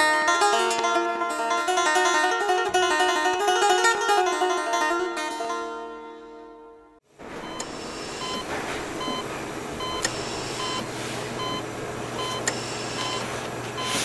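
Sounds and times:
short electronic beeps: 0:12.2 - 0:13.2, 0:13.8 - 0:14.0.

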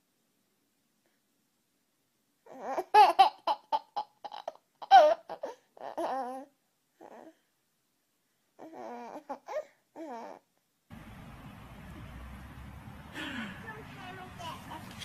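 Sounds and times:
baby laughing: 0:02.5 - 0:06.4.

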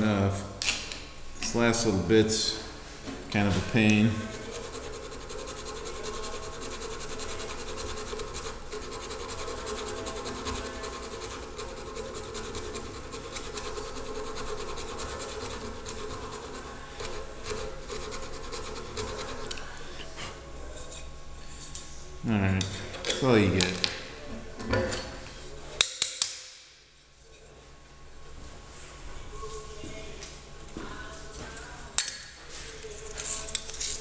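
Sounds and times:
hand file rasping on metal: 0:04.2 - 0:19.4.

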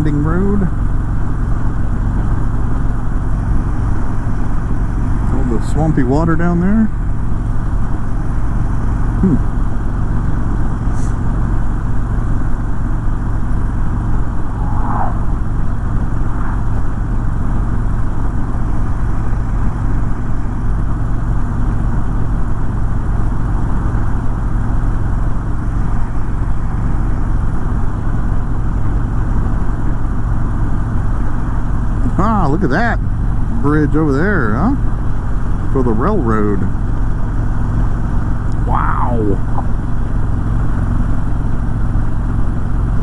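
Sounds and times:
motorcycle engine rumble: 0:00.1 - 0:43.0
wind rush on microphone: 0:14.2 - 0:17.2.

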